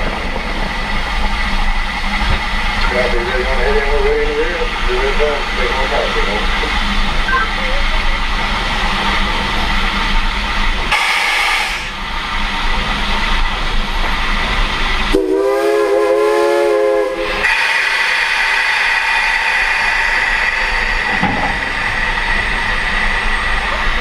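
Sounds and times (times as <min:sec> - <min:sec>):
moving train rumble and hiss: 0:00.0 - 0:24.0
locomotive whistle blast: 0:15.1 - 0:17.8.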